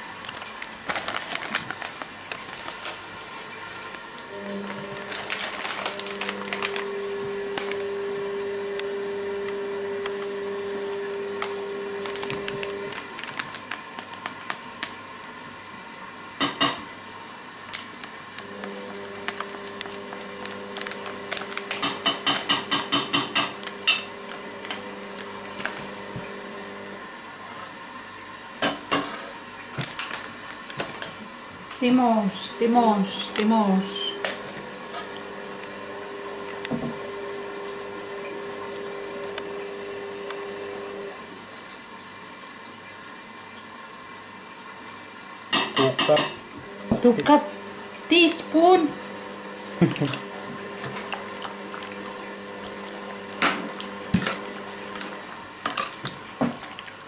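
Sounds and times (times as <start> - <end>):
kitchen utensils clinking: 45.6 - 46.4.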